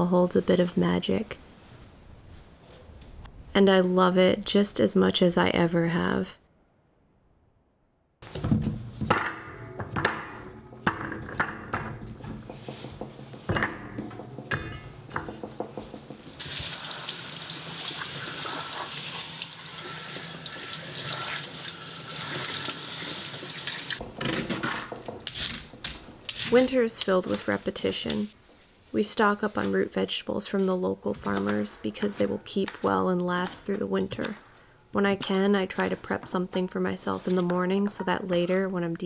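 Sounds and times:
kitchen knocks and clunks: 8.2s - 16.7s, 24.0s - 26.4s
water splashing through colander: 16.4s - 24.0s.

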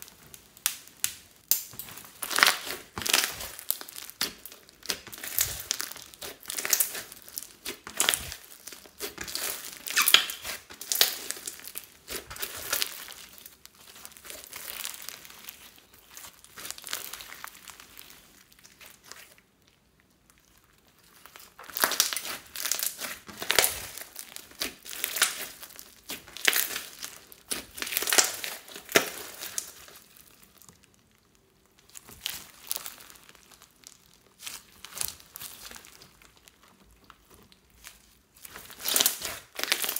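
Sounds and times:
slime squeezed with sticky clicks: 0.6s - 12.9s.

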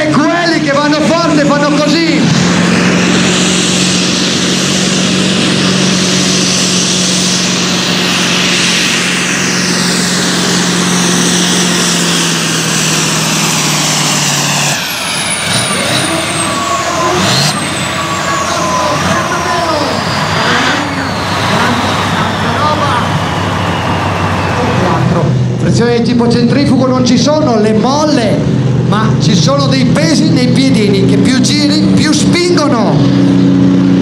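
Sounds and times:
tractor engine at full throttle: 0.0s - 34.0s
high whistle: 14.8s - 25.1s.

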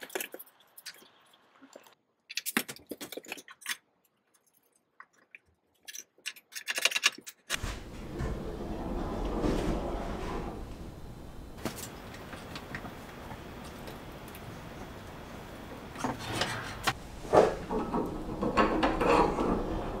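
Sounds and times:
metal knocks and scrapes: 7.5s - 12.8s, 16.0s - 20.0s.

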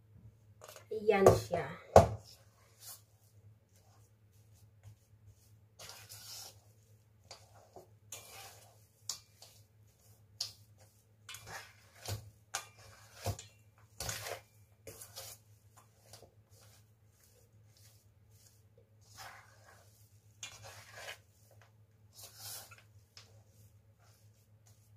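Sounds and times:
metal utensil scraping steel pot: 8.1s - 8.7s.

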